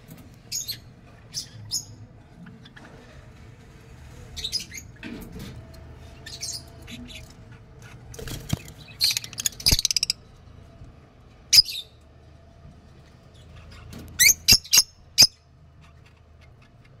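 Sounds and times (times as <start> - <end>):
lovebirds squeaking: 8.5 - 10.2, 14.2 - 15.4.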